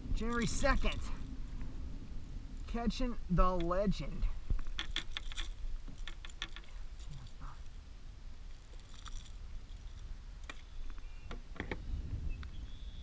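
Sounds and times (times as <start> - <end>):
low steady rumble: 0.0 - 13.0
clicks and knocks in plastic kayak: 4.5 - 6.7, 8.6 - 11.8.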